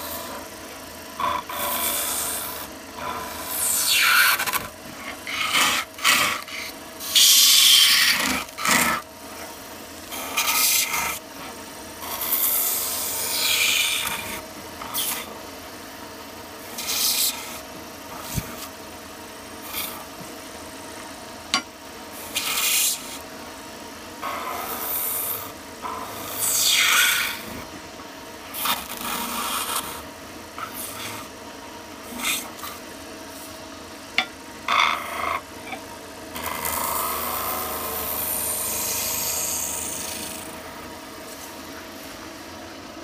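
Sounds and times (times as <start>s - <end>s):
chisel scraping spinning wood: 1.1s - 15.4s, 16.6s - 18.8s, 21.5s - 23.3s, 28.5s - 31.4s, 32.0s - 33.6s, 34.2s - 42.2s.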